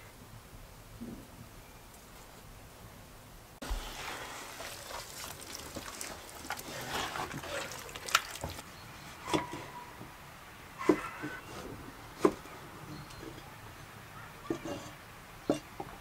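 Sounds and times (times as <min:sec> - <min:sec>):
hands squishing raw meat: 0:03.6 - 0:08.6.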